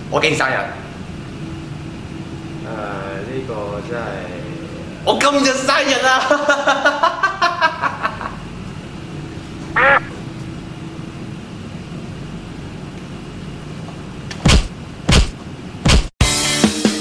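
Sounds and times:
brief squawk: 0:09.8 - 0:10.2.

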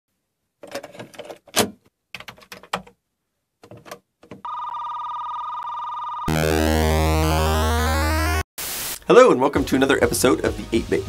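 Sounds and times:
steady electronic tone: 0:06.3 - 0:08.5.

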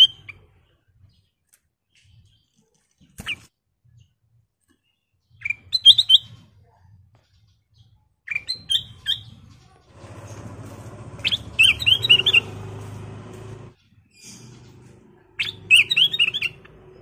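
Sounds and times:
bird singing whistled notes: 0:05.2 - 0:06.4, 0:07.8 - 0:09.6, 0:11.1 - 0:17.0.

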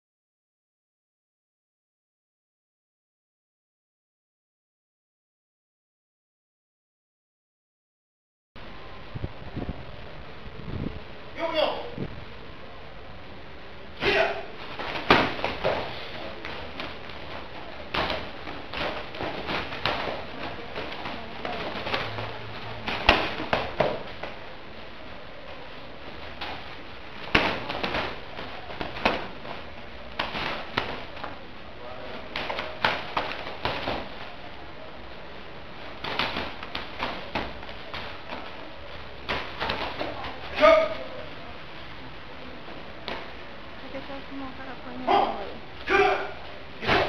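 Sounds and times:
padded gloves thudding and slapping: 0:14.6 - 0:24.4, 0:26.2 - 0:31.4, 0:32.3 - 0:34.3, 0:36.0 - 0:38.6, 0:39.2 - 0:40.4.

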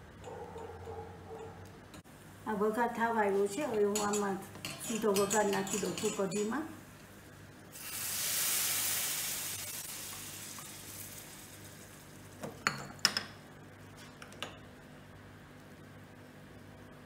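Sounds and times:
hot oil sizzling: 0:07.7 - 0:13.2.

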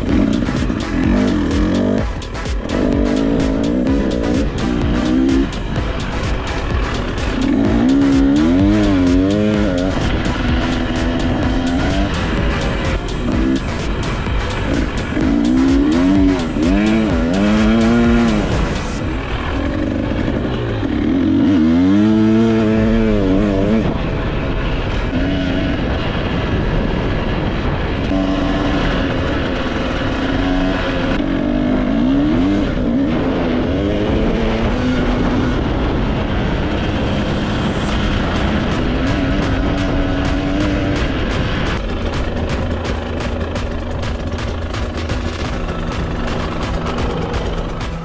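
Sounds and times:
motorcycle engine revving: 0:00.0 - 0:48.0.

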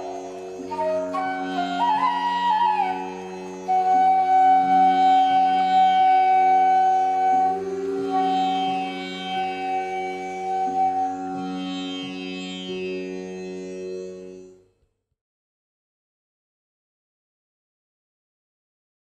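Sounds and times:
flute melody: 0:00.0 - 0:13.6.

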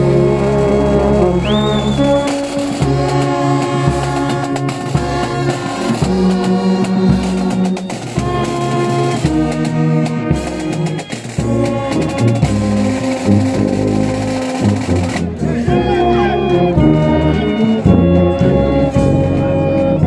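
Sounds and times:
brass band playing: 0:00.0 - 0:20.0
drum strokes: 0:01.4 - 0:15.9.

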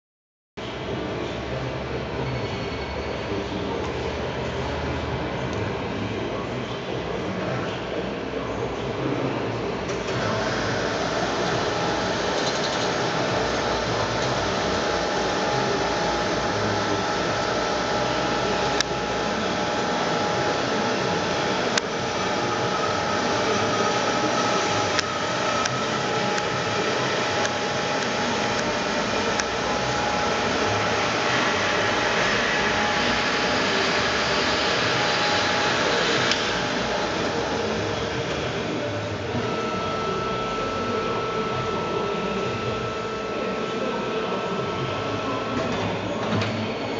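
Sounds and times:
band saw machine hum: 0:10.0 - 0:46.9.

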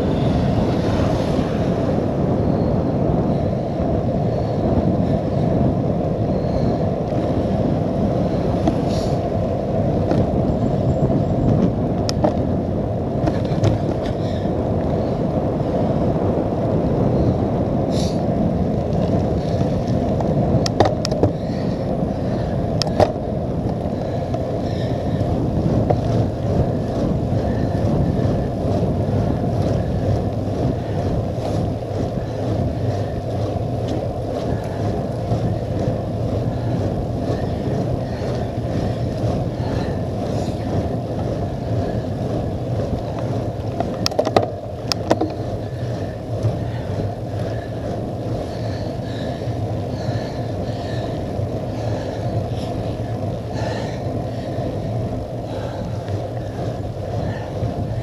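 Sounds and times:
wind rushing over microphone: 0:00.0 - 0:58.0
tyre noise on wet tarmac: 0:11.1 - 0:14.5, 0:22.4 - 0:58.0.

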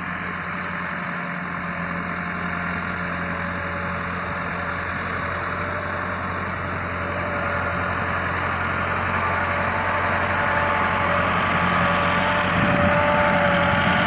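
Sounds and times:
tractor diesel engine running: 0:00.0 - 0:14.0
blade dragging over dry soil: 0:06.6 - 0:14.0.

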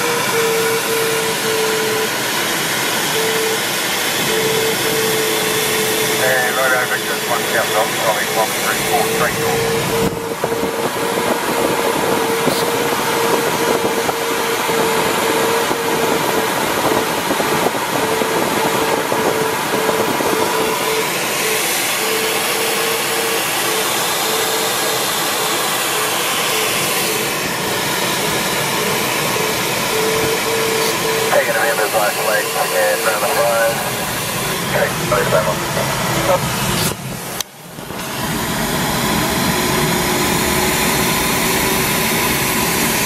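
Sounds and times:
variometer short beeps: 0:04.2 - 0:06.2.

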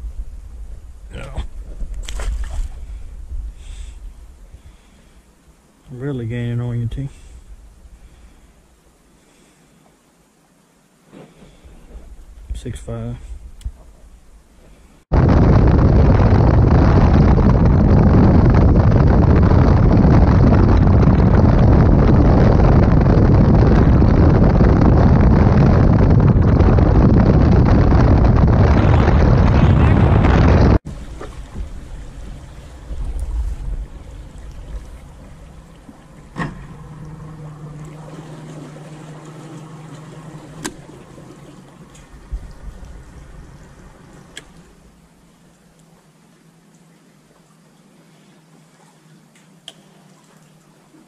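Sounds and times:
wind rumble on microphone: 0:00.0 - 0:05.1, 0:11.6 - 0:45.0
hull and water noise: 0:00.0 - 0:51.0
outboard motor: 0:15.2 - 0:47.8.

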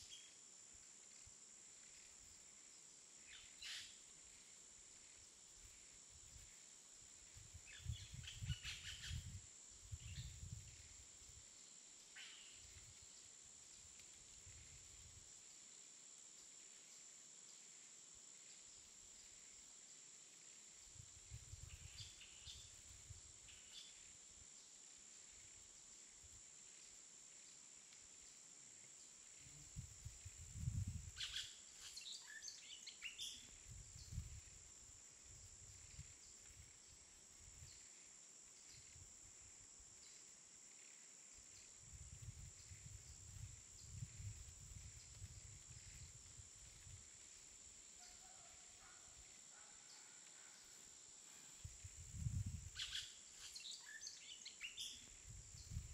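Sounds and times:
high insect whine: 0:00.0 - 0:55.9
bird chirps: 0:52.8 - 0:55.2.

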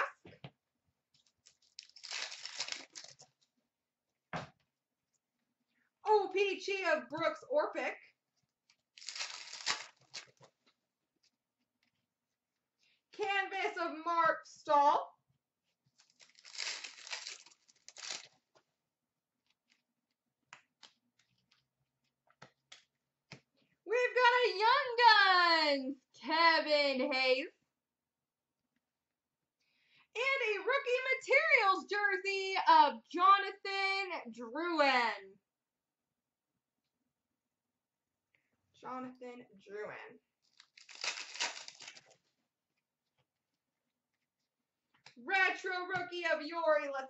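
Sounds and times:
wrapper tearing and crinkling: 0:01.2 - 0:03.3, 0:08.9 - 0:10.5, 0:16.0 - 0:18.4, 0:40.4 - 0:42.3.

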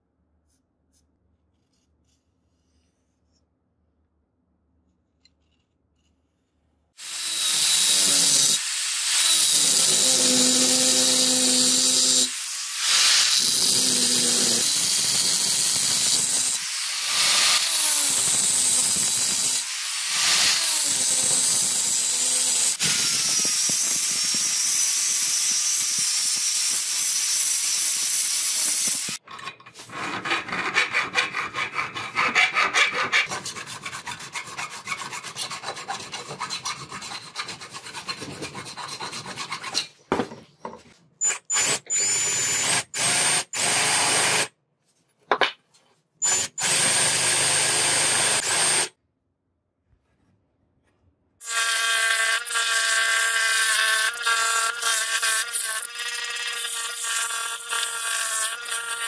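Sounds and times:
angle grinder cutting metal: 0:07.0 - 0:29.2, 0:29.8 - 0:39.8, 0:51.4 - 0:59.0.

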